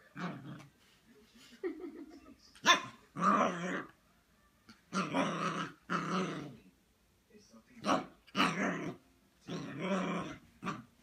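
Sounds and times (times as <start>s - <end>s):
puppy barking and growling: 0.0s - 0.7s, 2.6s - 4.0s, 4.7s - 6.6s, 7.8s - 11.0s.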